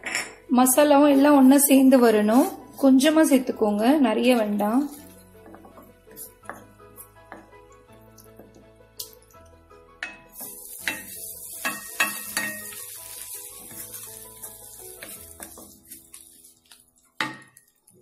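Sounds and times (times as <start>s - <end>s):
masala sizzling in a pan: 10.2s - 18.0s.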